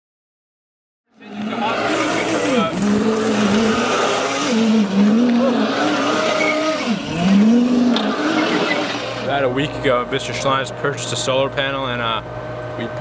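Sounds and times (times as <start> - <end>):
small wheels scrubbing: 1.2 - 9.3
electric motor whine: 1.2 - 10.3
tyre squeal: 1.3 - 9.3.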